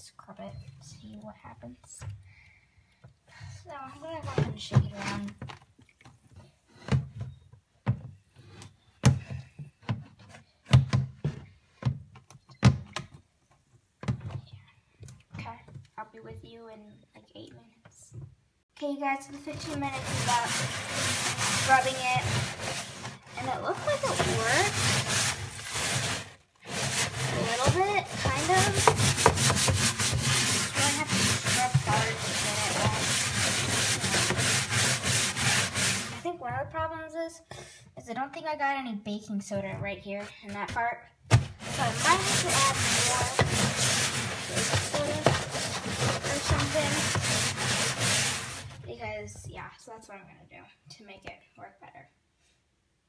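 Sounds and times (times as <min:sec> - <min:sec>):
brush scrubbing plastic: 0:19.3 - 0:36.3, 0:41.4 - 0:49.0
plastic box knocking and thudding: 0:41.3 - 0:47.5.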